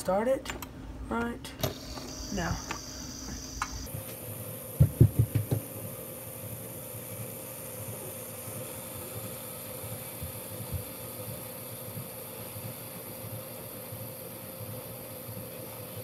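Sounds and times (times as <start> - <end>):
fidget spinner whirring: 1.6 - 3.9.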